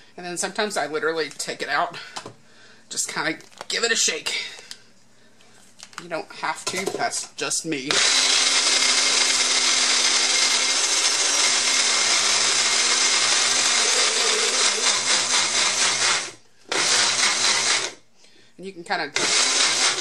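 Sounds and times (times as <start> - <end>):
blender motor running: 7.9 - 18.0, 19.2 - 20.0.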